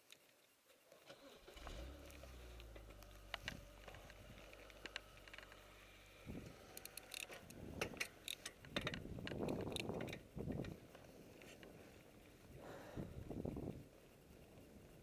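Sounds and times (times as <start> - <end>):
faint low hum: 0.0 - 15.0
bike clicking and ticking: 2.1 - 12.6.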